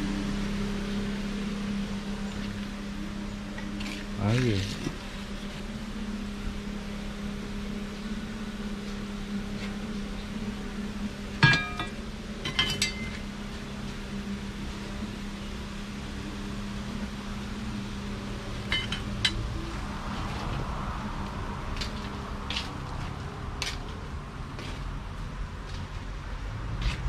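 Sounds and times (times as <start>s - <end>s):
steady low hum: 0.0s - 27.0s
hard objects clinking: 11.4s - 13.1s.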